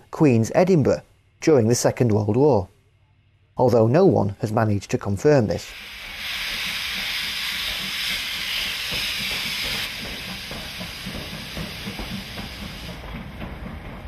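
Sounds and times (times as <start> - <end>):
steam hissing: 5.6 - 14.0
train clatter: 5.8 - 14.0.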